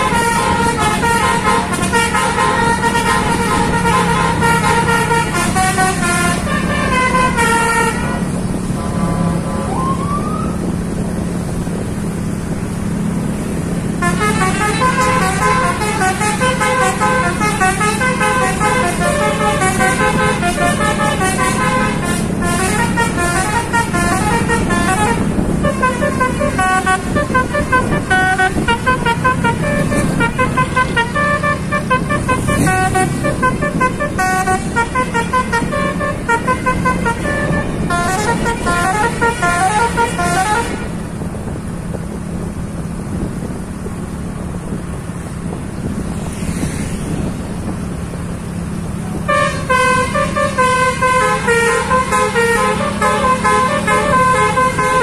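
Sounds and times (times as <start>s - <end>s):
musical air horn playing tune: 0.0s - 9.9s, 14.0s - 41.0s, 49.2s - 55.0s
bus engine drone: 0.0s - 55.0s.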